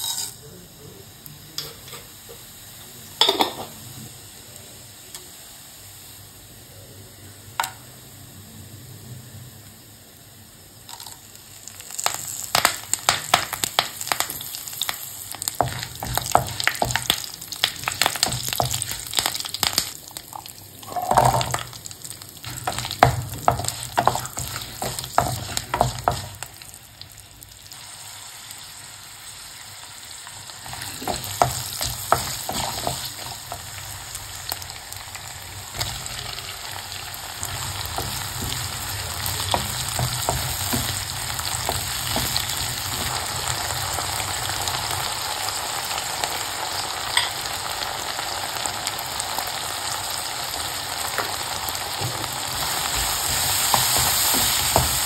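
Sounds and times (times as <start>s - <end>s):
spices frying in hot oil: 0.0s - 55.0s
wooden spatula stirring in pan: 15.4s - 19.9s, 22.4s - 26.7s, 30.7s - 34.1s, 37.4s - 44.4s, 51.9s - 55.0s.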